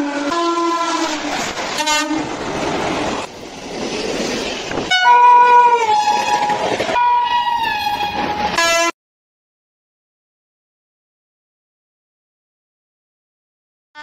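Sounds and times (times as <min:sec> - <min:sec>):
train horn: 0:00.0 - 0:02.3, 0:04.9 - 0:09.0
passenger train rushing past: 0:00.0 - 0:08.9.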